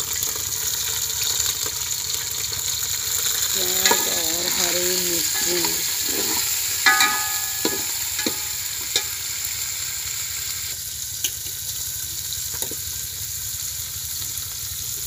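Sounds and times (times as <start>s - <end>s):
onions sizzling in oil: 0.0s - 15.0s
metal ladle knocking pot: 3.6s - 9.1s.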